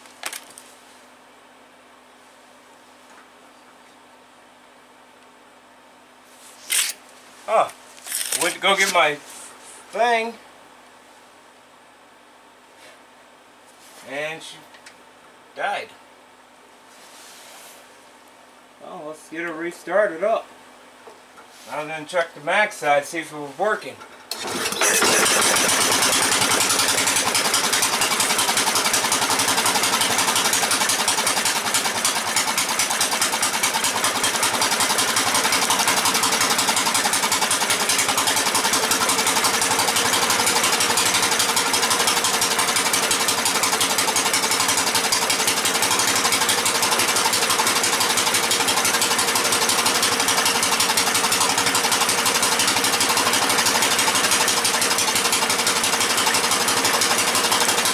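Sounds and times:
engine running loudly: 0:24.3 - 0:57.9.

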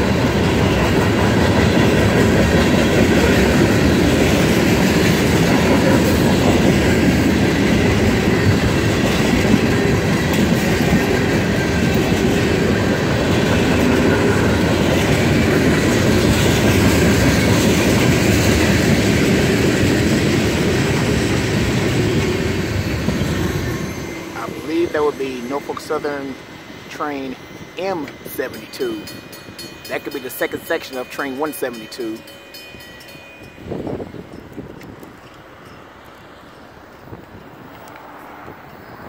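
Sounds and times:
freight train rolling past: 0:00.0 - 0:39.0.

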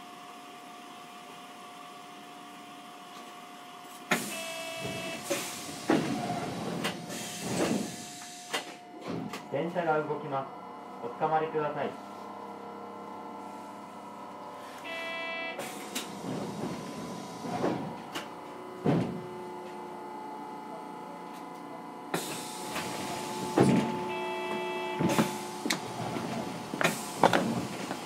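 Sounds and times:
tram electrical hum: 0:00.0 - 0:28.0
short buzzer-like chime: 0:04.3 - 0:05.2, 0:14.8 - 0:15.6, 0:23.9 - 0:25.4
knocks and thuds: 0:18.8 - 0:19.3.

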